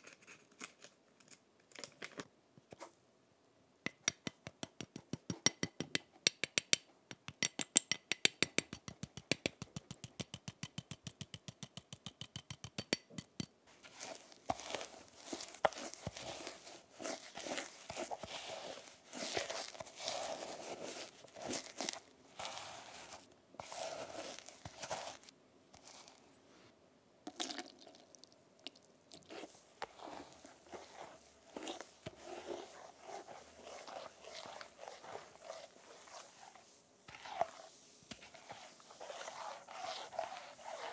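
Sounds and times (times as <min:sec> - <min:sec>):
spatula scraping paste in bowl: 0:08.5 - 0:26.2, 0:29.1 - 0:40.9.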